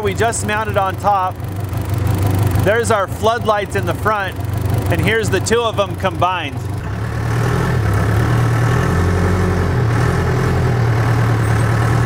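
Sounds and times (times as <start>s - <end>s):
backhoe engine idling: 0.0s - 12.0s.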